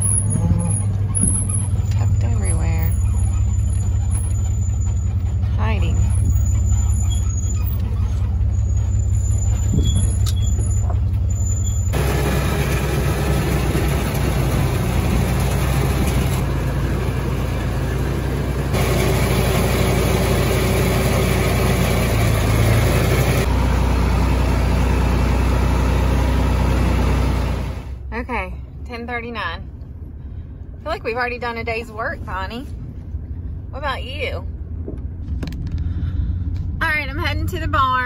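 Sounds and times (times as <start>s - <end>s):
pickup truck engine rumble: 0.0s - 28.1s
tractor engine running: 0.0s - 38.0s.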